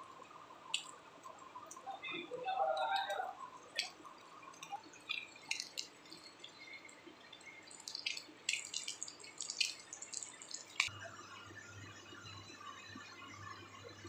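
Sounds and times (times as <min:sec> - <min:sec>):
oil crackling and popping: 0:03.0 - 0:10.9.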